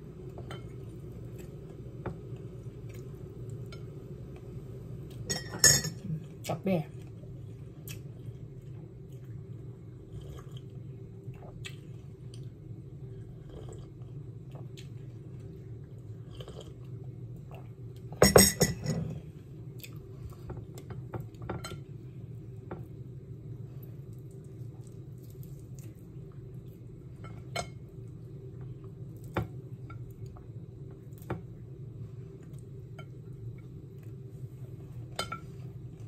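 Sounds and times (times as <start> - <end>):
steady low hum: 0.0 - 36.0
tableware knock and clatter: 18.2 - 19.1.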